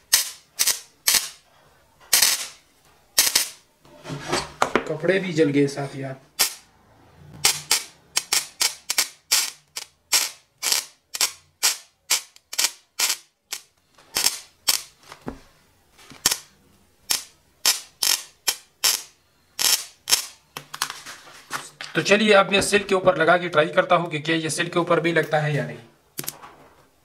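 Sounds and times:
spot welder cracking: 0.0s - 1.4s, 2.1s - 2.6s, 3.2s - 3.6s, 6.4s - 6.6s, 7.4s - 14.9s, 16.2s - 20.4s.

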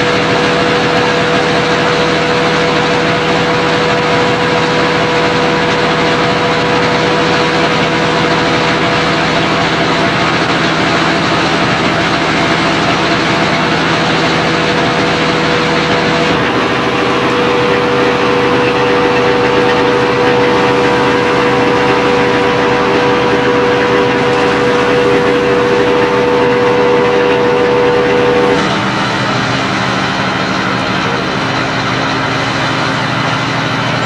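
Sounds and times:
fire truck engine running: 0.0s - 34.0s
steady whining tone: 0.0s - 34.0s.

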